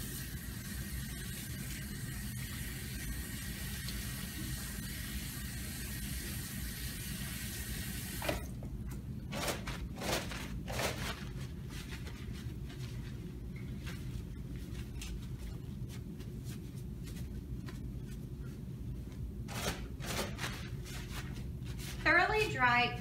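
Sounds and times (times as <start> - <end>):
paper towels rustling: 9.3 - 22.5.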